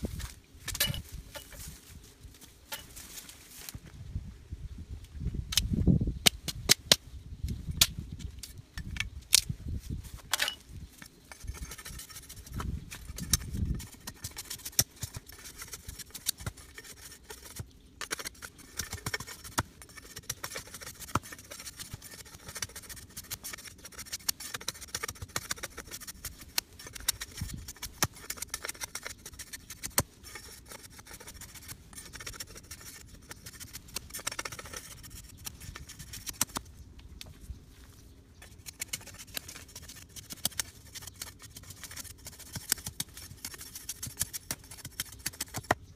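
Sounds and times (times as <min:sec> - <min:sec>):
blade scraping bamboo: 0:10.4 - 0:36.6, 0:38.4 - 0:45.8.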